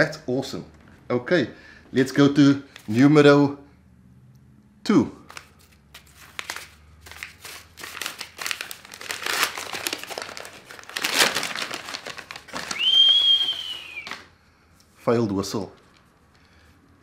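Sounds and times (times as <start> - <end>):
paper tearing and crumpling: 5.3 - 12.8
person whistling: 12.7 - 14.3.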